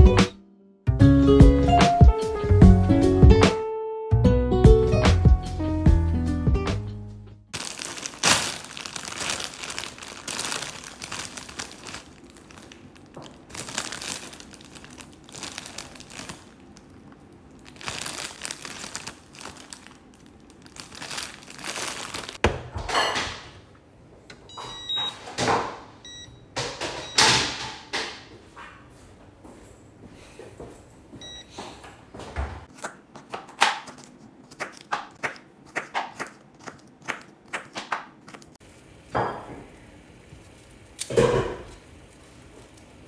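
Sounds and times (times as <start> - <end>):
plastic bag crinkling: 7.6 - 22.4
cooktop button beeps: 24.4 - 25.2.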